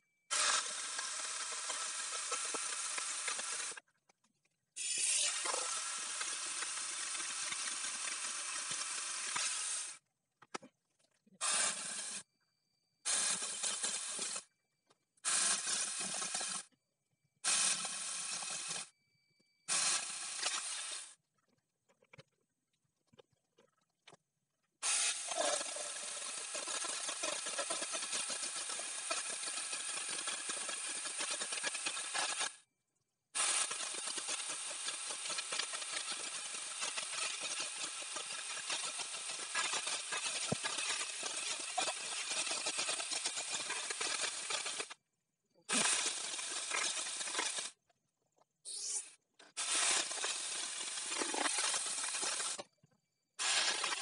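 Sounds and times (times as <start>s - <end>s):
electric chainsaw cutting log: 0.3s - 3.8s.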